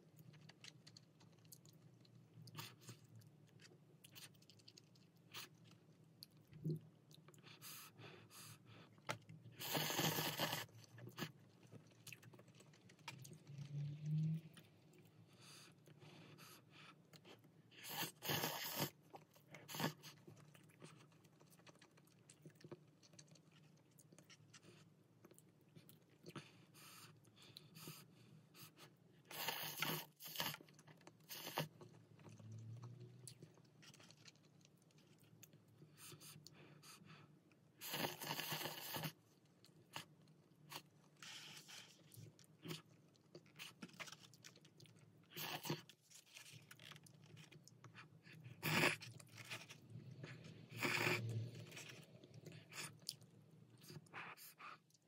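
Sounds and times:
chewing: 0:00.0 - 0:55.0
slurping noodles: 0:09.5 - 0:11.4, 0:17.8 - 0:20.2, 0:29.2 - 0:32.5, 0:37.8 - 0:39.2, 0:48.3 - 0:53.0.

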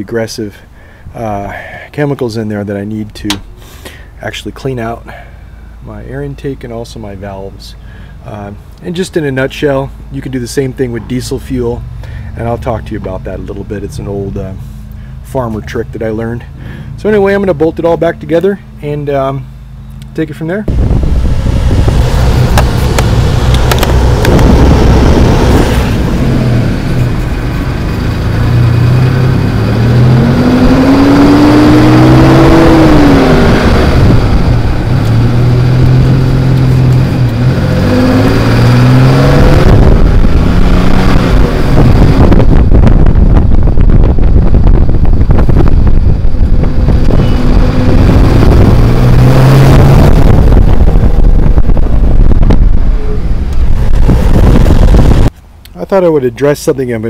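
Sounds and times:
truck engine accelerating: 0:10.3 - 0:55.3.

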